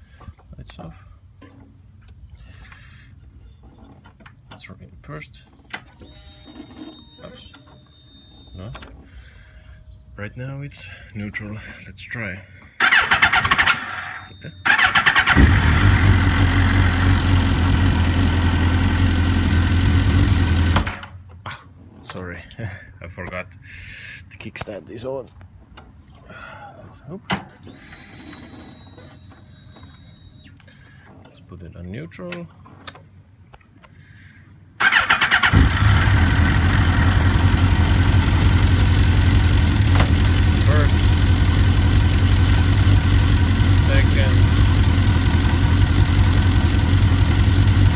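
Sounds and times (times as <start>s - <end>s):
motorcycle engine starting and idling: 12.8s - 21.2s, 34.8s - 47.9s.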